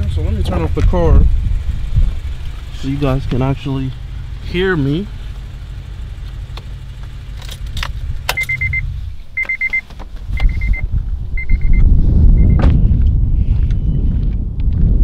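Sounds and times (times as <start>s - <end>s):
low rumble: 0.0s - 9.4s, 10.2s - 15.0s
car engine idling: 0.0s - 11.8s
car warning chime beeping: 8.3s - 10.8s, 11.4s - 12.6s.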